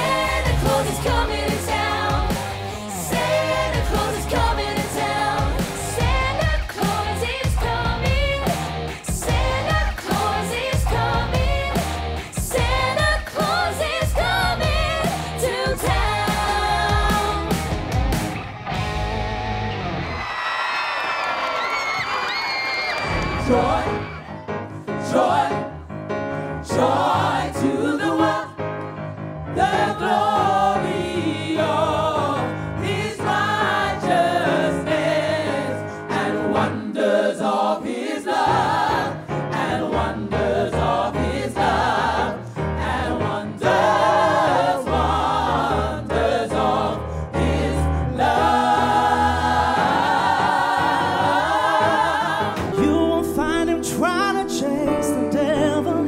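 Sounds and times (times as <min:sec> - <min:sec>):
lead singer: 0:00.0 - 0:18.2, 0:22.8 - 0:25.8, 0:29.5 - 0:56.0
gospel choir singing: 0:00.0 - 0:19.0, 0:23.0 - 0:56.0
instrumental backing: 0:42.8 - 0:56.0.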